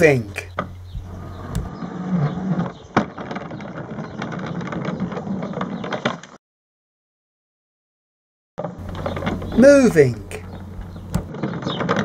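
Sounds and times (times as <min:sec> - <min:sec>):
toy cart rolling on wooden decking: 0:00.4 - 0:06.4, 0:08.6 - 0:12.0
clicks and knocks: 0:08.8 - 0:09.6, 0:10.4 - 0:12.0.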